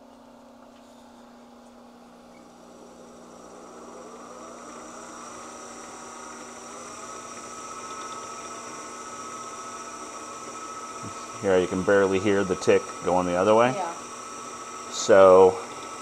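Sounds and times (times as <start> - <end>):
electric motor whine: 1.8 - 16.0
faint motor tick: 4.2 - 16.0.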